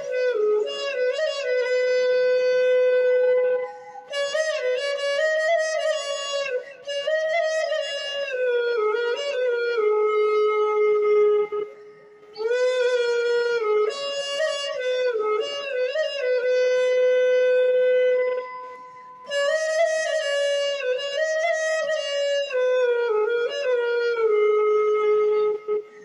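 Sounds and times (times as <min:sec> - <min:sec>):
solo woodwind slow melody: 0:00.0 - 0:26.0.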